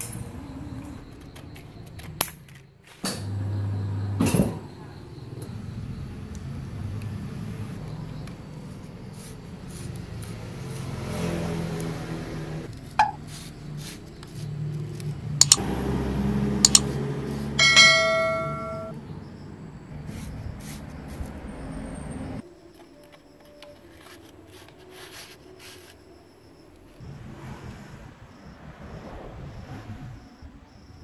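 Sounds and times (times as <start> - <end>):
hands clicking and tapping on metal: 16.7 - 16.9
bell-like ringing tone: 17.6 - 19.0.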